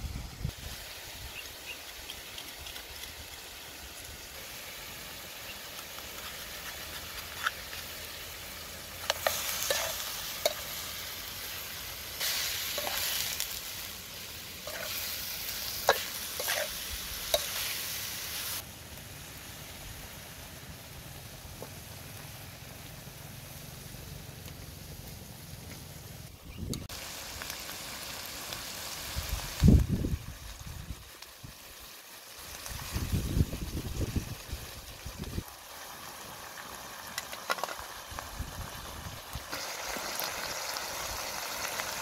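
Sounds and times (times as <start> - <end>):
food sizzling in a wok: 0.0 - 42.0
wooden spatula scraping a pan: 15.8 - 17.6.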